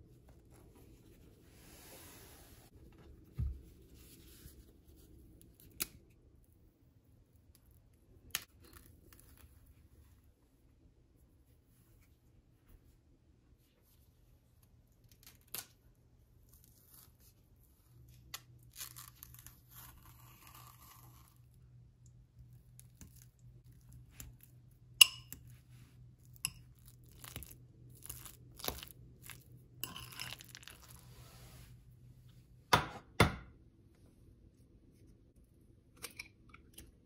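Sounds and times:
fork tapping glass bowl: 25.0 - 25.4.

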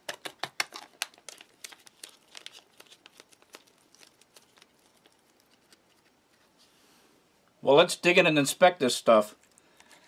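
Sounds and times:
foil pouch crinkling: 0.0 - 6.5.

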